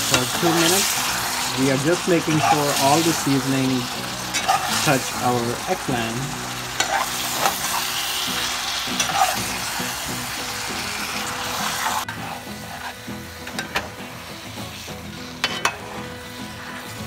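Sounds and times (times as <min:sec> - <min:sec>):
vegetables sizzling in oil: 0:00.0 - 0:17.0
metal spoon scraping pot: 0:04.3 - 0:04.9, 0:06.8 - 0:07.8, 0:08.9 - 0:09.5, 0:15.4 - 0:15.8.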